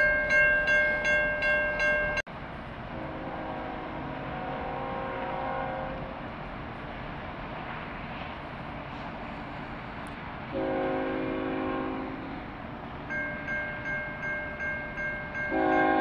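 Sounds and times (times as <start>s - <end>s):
bell ringing: 0.0s - 2.2s, 13.1s - 16.0s
train rumble: 0.0s - 16.0s
locomotive air horn: 3.0s - 6.1s, 10.5s - 12.5s, 15.5s - 16.0s.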